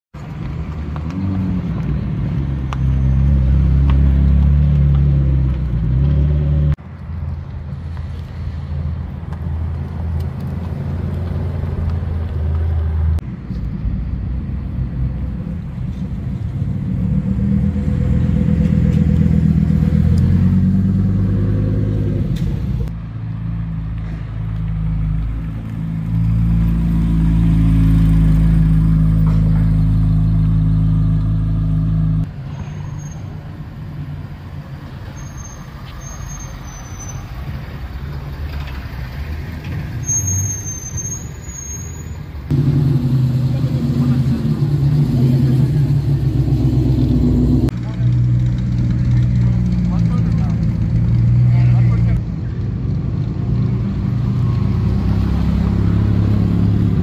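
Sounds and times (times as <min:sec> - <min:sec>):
sports car engine idling and revving: 0:00.2 - 0:32.3, 0:42.4 - 0:57.0.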